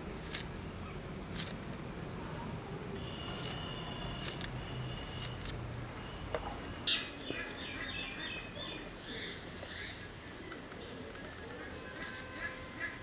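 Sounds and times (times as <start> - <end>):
outdoor background noise: 0.0 - 13.0
small birds chirping: 3.0 - 12.6.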